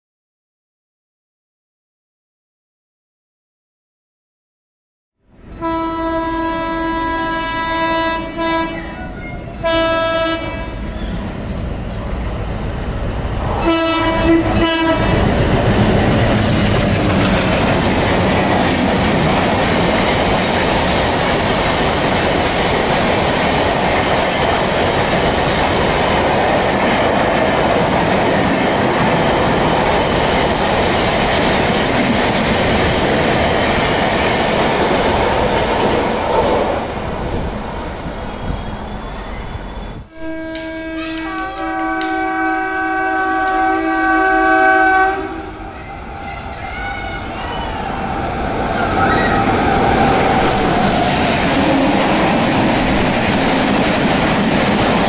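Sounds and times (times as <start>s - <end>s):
train horn blasts: 5.5s - 10.8s, 13.6s - 15.2s, 40.1s - 45.6s
train wheels clattering over rail joints: 15.1s - 36.8s, 50.8s - 55.0s.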